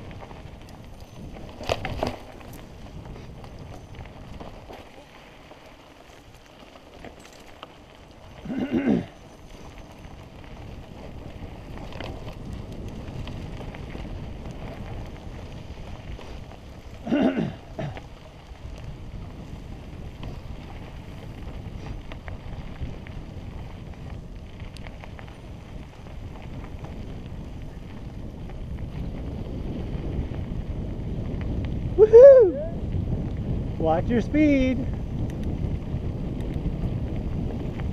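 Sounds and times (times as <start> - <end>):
bike tyre rumble and rattle: 0.0 - 37.9
wind noise: 0.0 - 37.9
light clicks and rattles: 6.0 - 7.8.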